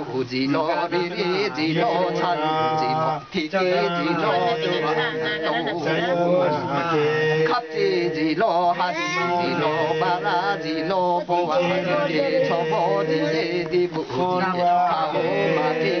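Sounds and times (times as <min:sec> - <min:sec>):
men chanting: 0:00.0 - 0:16.0.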